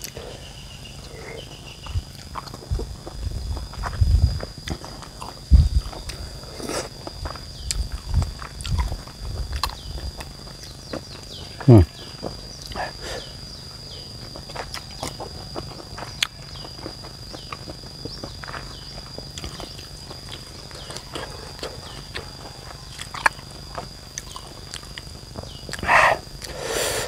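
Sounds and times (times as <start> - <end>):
high-pitched insect chirping: 0.0 - 27.0
person chewing: 2.1 - 10.8, 14.6 - 17.6, 19.3 - 26.9
sharp mouth clicks: 25.7 - 26.6.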